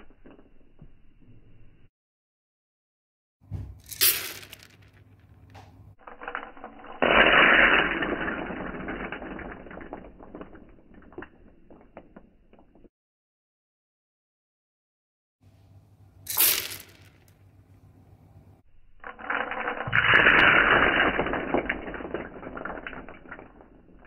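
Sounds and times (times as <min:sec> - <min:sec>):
coffee beans clattering on plastic: 0:03.8 - 0:05.0, 0:06.1 - 0:12.6, 0:16.3 - 0:17.4, 0:19.1 - 0:24.0.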